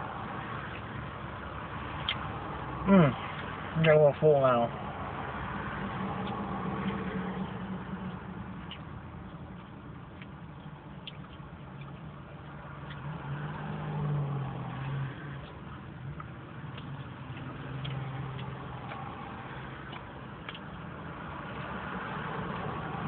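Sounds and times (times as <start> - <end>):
chewing clicks: 2.0 - 2.3, 8.0 - 13.7, 15.4 - 21.8.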